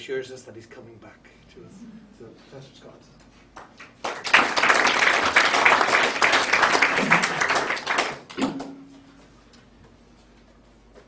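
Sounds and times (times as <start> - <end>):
audience applauding: 3.6 - 8.4.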